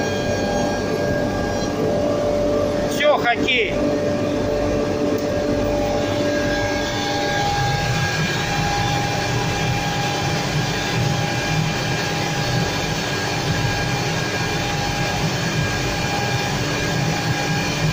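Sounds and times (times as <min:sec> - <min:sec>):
machine droning and rumbling: 0:00.0 - 0:17.9.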